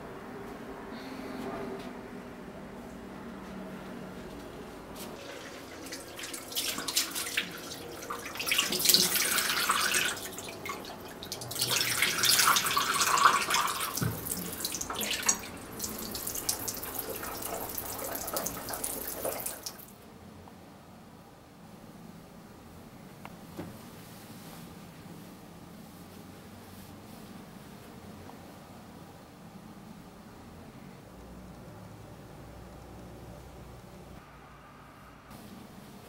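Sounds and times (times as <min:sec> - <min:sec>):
water running from tap: 0:05.2 - 0:19.9
water splashing into basin: 0:05.2 - 0:19.9.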